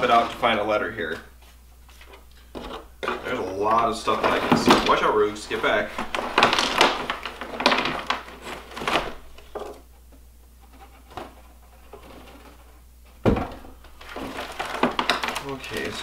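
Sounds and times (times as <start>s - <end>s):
cardboard box rustling and knocking: 11.0s - 15.4s.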